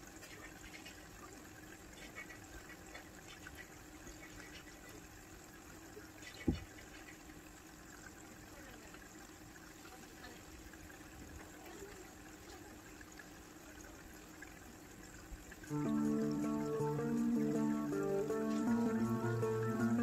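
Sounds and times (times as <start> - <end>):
aquarium filter water trickling: 0.0 - 20.0
dull thump: 6.4 - 6.7.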